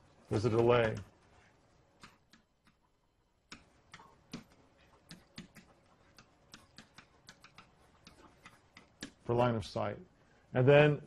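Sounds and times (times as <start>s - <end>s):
stylus tapping tablet screen: 0.4s - 1.3s, 1.9s - 9.4s.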